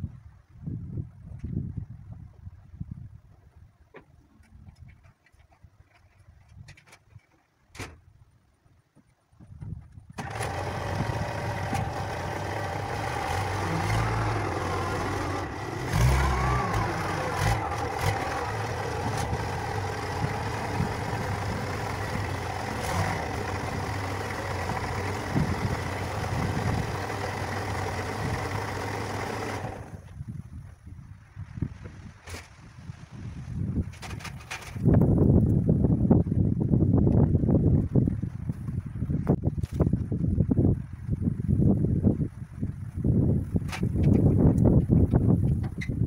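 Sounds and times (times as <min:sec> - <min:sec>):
wheel loader engine running: 0:10.2 - 0:30.2.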